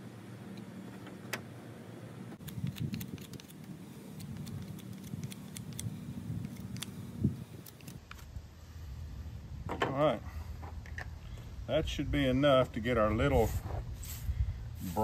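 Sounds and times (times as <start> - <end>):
knife shaving wood: 2.4 - 7.0.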